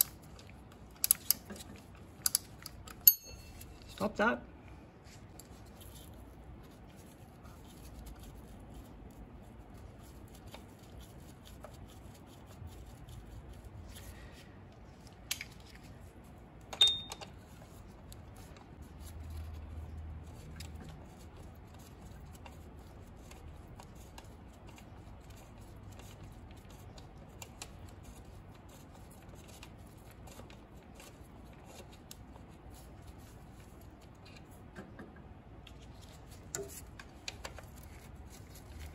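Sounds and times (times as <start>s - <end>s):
sharp metal clinks: 3.0s - 3.7s, 16.8s - 17.2s.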